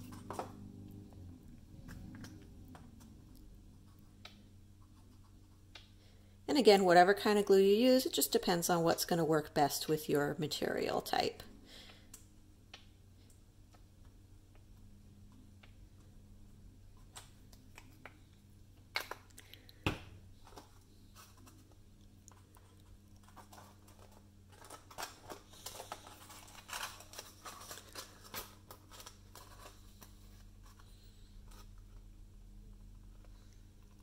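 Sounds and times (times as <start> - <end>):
paper rustling and crinkling: 20.4 - 32.1.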